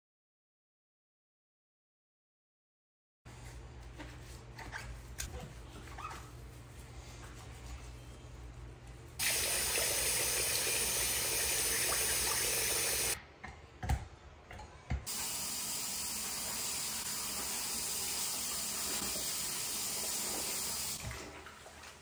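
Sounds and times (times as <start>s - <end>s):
cloth rinsed under water: 9.2s - 13.2s
faucet running into sink: 9.2s - 13.2s, 15.1s - 21.6s.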